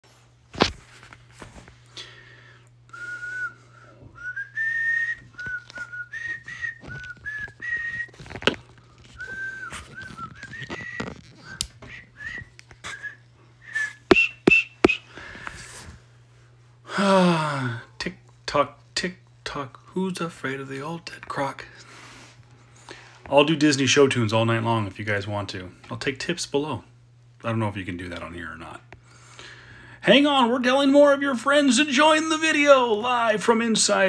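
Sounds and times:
man whistling a tune: 2.9s - 8.2s, 9.2s - 15.1s.

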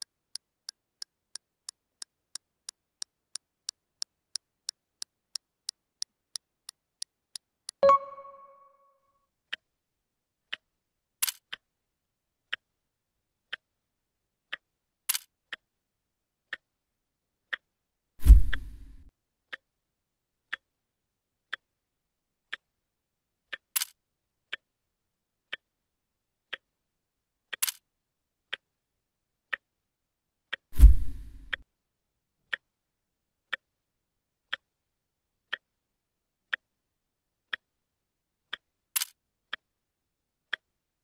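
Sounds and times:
clock ticking: 0.0s - 8.7s, 14.5s - 14.7s, 35.5s - 35.7s
bell-like ding: 7.8s - 8.9s
low thump: 30.8s - 31.4s.

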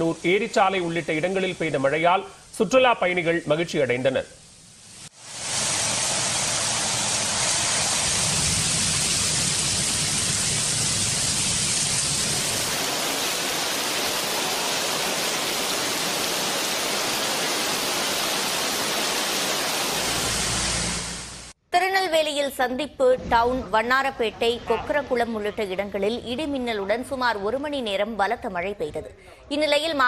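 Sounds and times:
heavy rain: 4.9s - 21.6s.

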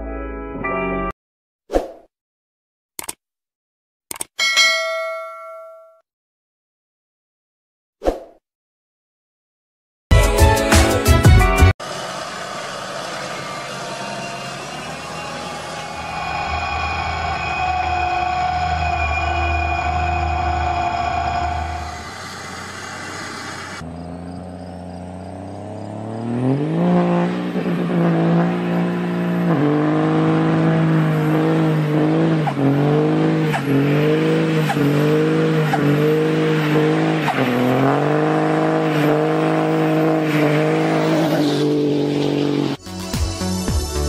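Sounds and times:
car engine revving: 11.8s - 42.8s.

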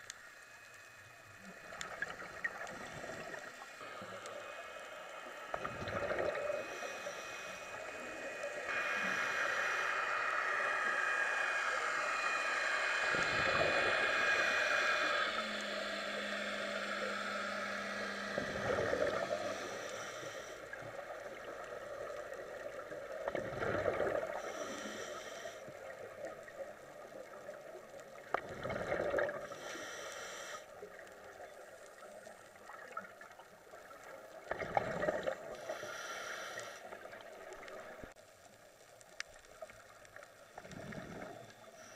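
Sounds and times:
regulator hiss: 0.0s - 28.4s, 29.2s - 32.4s, 35.4s - 38.0s
exhaled bubbles burbling underwater: 5.5s - 6.7s, 18.3s - 19.7s, 20.7s - 24.6s, 25.8s - 29.6s, 32.5s - 35.6s, 40.5s - 41.7s.

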